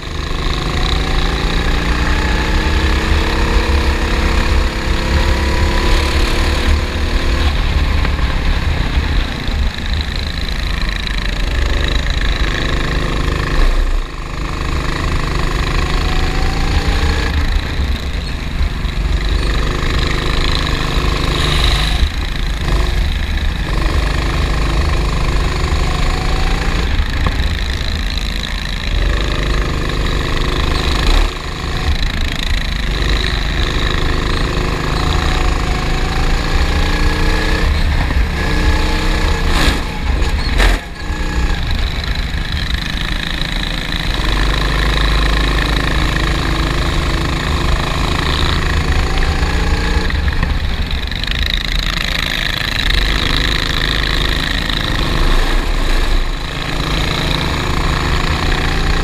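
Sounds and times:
racing kart engine revving: 0.0 - 59.0
heavy low rumble: 4.4 - 12.5.

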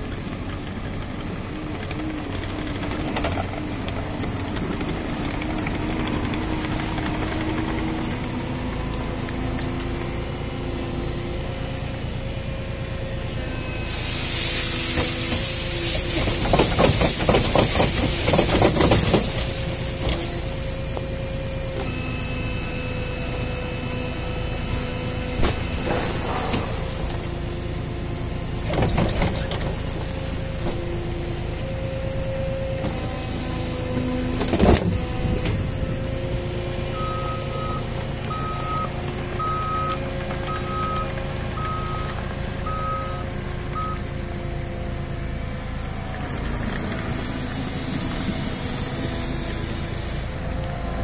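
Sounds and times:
diesel engine running: 0.0 - 51.0
loud hiss: 13.8 - 21.0
olives pouring into metal trailer: 13.9 - 21.0.

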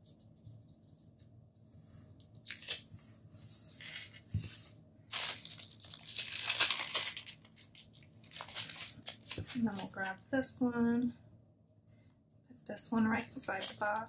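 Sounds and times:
sticker sheet crinkling: 2.4 - 3.0, 3.8 - 10.2, 13.4 - 14.0
pages rustling and sliding: 2.4 - 7.4.

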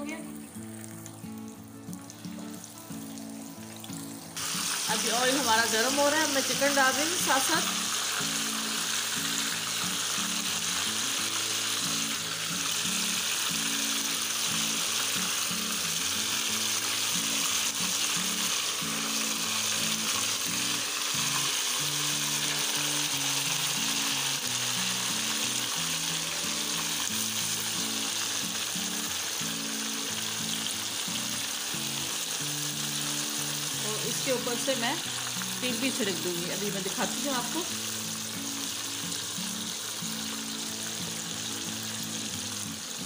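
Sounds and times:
chicken sizzling in hot oil: 0.0 - 43.0
soft background music: 0.0 - 43.0.

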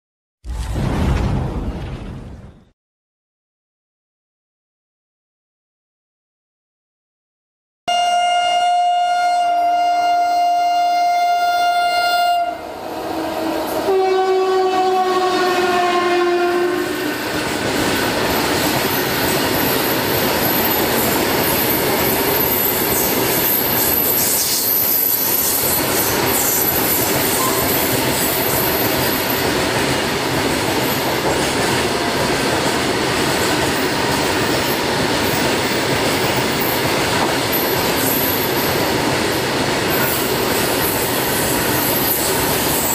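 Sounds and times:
locomotive horn blasts: 7.9 - 17.2
train wheels rushing on rails: 16.8 - 42.9.

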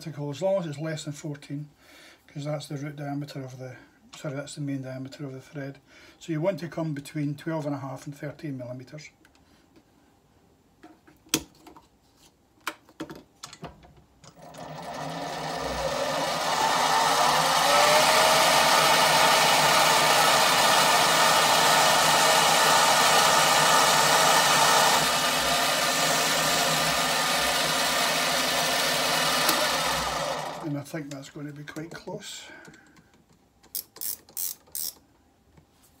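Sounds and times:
lathe motor whining: 14.4 - 30.7
lathe control clicks: 28.9 - 31.2.

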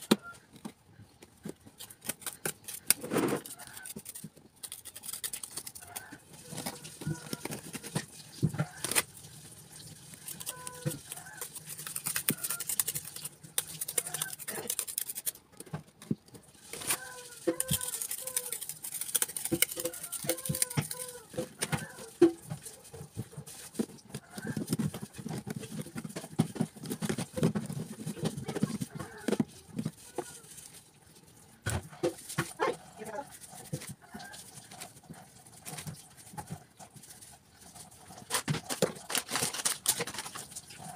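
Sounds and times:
crackers tapping in plastic container: 17.4 - 22.6.

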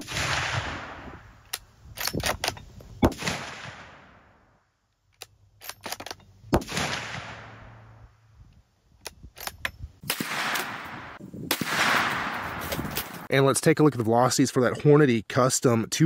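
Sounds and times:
rifle shots: 0.0 - 1.3, 2.0 - 4.3, 6.5 - 7.9, 10.0 - 13.3
rifle bolt metallic clicks: 1.4 - 2.7, 5.0 - 6.3, 9.0 - 9.8.

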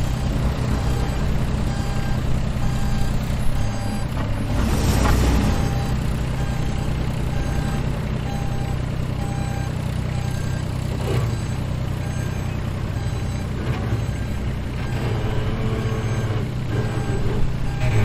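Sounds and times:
bus engine running: 0.0 - 18.0
short electronic beeps: 0.8 - 18.0.

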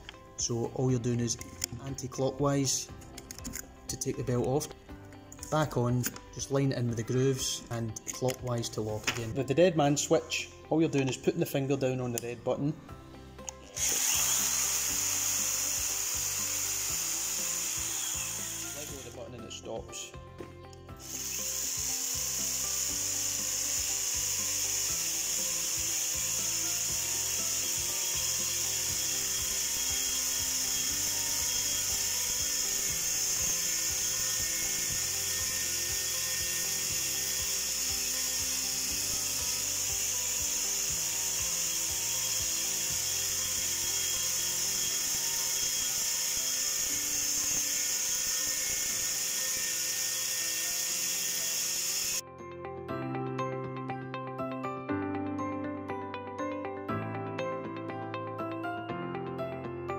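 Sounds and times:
motor whine: 13.6 - 19.2, 20.9 - 52.2.

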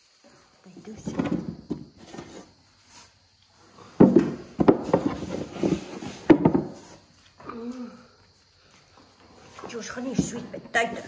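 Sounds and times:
knocks and clatters in plastic tub: 0.9 - 2.5, 4.0 - 7.0, 9.6 - 11.0.

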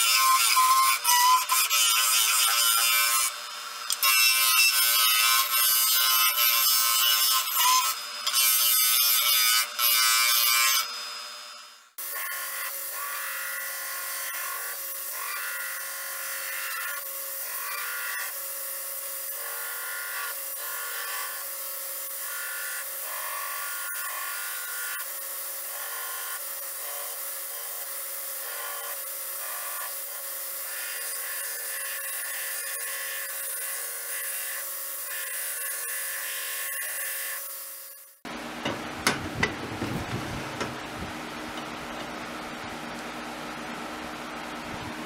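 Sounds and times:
belt grinder motor whine: 9.6 - 18.3.

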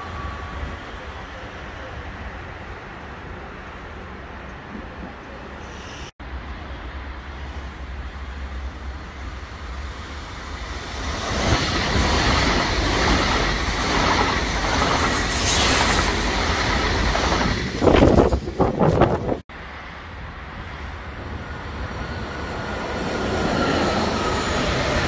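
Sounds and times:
high-speed train passing: 0.0 - 25.0
slipstream gusts buffeting microphone: 11.3 - 19.4.

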